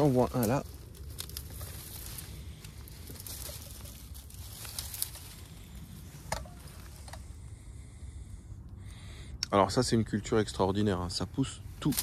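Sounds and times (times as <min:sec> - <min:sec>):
stems snapping: 0:00.0 - 0:05.4, 0:11.8 - 0:12.0
dry stems rustling and crackling: 0:00.0 - 0:07.6, 0:10.6 - 0:12.0.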